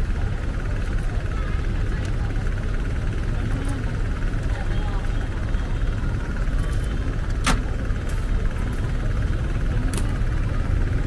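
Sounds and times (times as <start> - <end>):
rumble of passing vehicles: 0.0 - 11.0.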